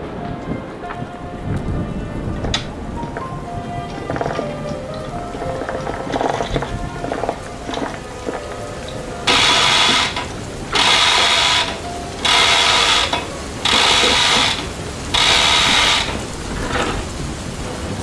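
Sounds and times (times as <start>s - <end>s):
chain hoist ratcheting: 9.3s - 16.9s.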